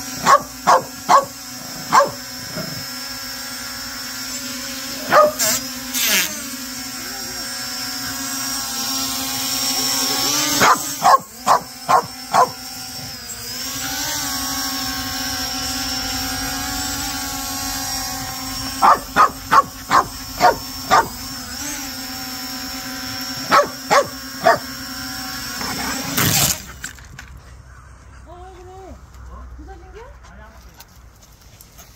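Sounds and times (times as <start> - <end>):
drone propellers humming: 0.0 - 28.3
dog barking: 0.2 - 2.2, 5.0 - 5.6, 10.6 - 12.6, 18.8 - 21.2, 23.5 - 24.6.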